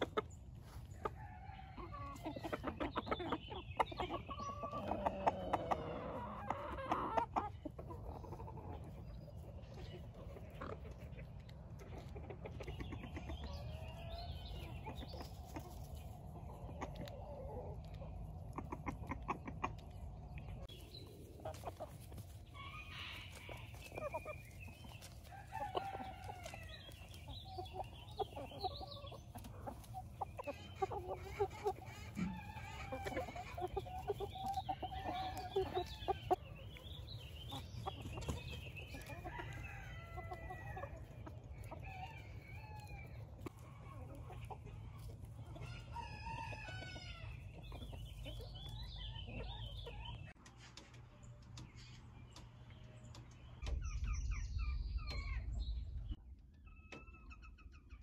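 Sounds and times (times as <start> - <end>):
chickens clucking: 0.0 - 58.0
rooster crowing: 25.3 - 26.8.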